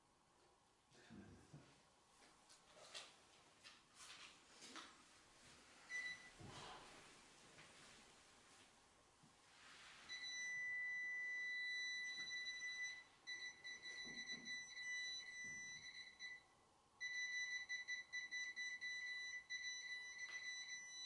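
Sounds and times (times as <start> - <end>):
electronic detector beeping: 10.1 - 16.4, 17.0 - 21.0.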